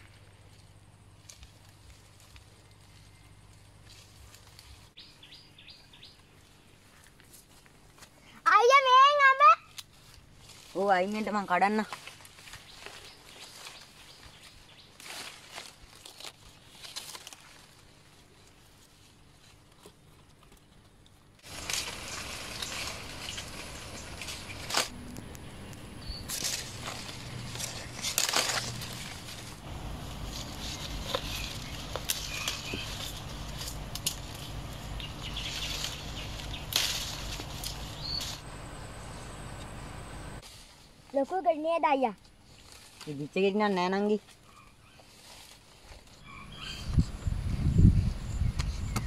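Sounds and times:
leaves and branches rustling: 0:00.0 - 0:49.0
branches snapping and knocking: 0:11.8 - 0:18.6, 0:19.5 - 0:38.8.

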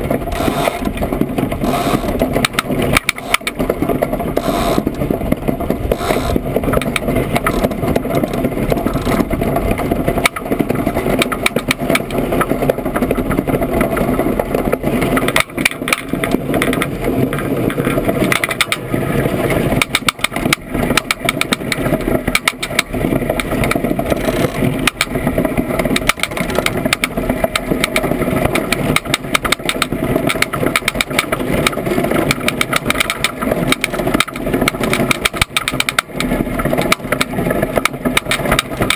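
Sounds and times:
sharp rattling clicks: 0:00.0 - 0:18.9, 0:19.7 - 0:38.9
runners rumbling over ice: 0:00.0 - 0:38.9
wind noise: 0:00.0 - 0:38.9.

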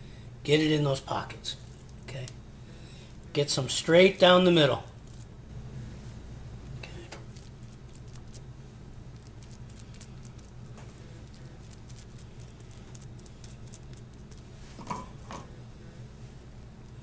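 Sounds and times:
steady low hum: 0:00.0 - 0:17.0
sticky squishing of stuffing: 0:06.6 - 0:14.8.

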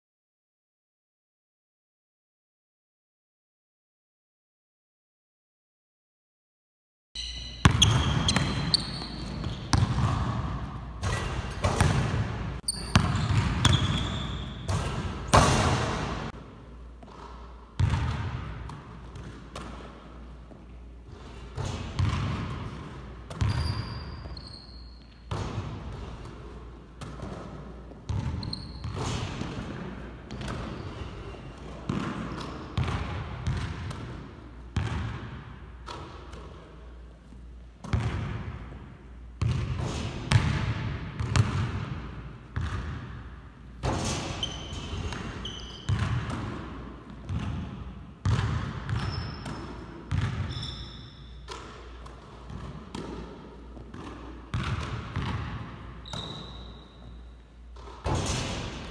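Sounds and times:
short high squeaks: 0:07.2 - 0:09.7, 0:12.6 - 0:14.6, 0:23.5 - 0:25.2, 0:50.5 - 0:51.3, 0:56.1 - 0:57.2
basketballs bouncing on hardwood floor: 0:07.6 - 0:12.2, 0:12.8 - 0:16.3, 0:17.8 - 0:19.9, 0:21.6 - 0:24.4, 0:25.3 - 0:30.8, 0:31.9 - 0:34.2, 0:34.8 - 0:35.3, 0:37.8 - 0:38.4, 0:39.4 - 0:42.0, 0:42.6 - 0:43.2, 0:44.4 - 0:50.7, 0:51.5 - 0:56.4.

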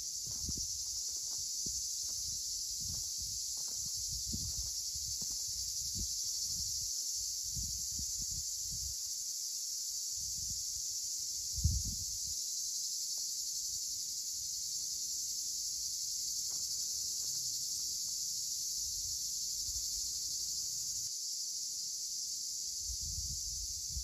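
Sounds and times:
high-pitched insect chorus: 0:00.0 - 0:24.0
wind rumble on microphone: 0:00.2 - 0:01.0, 0:01.6 - 0:09.0, 0:10.2 - 0:10.7, 0:11.4 - 0:12.3, 0:22.8 - 0:24.0.

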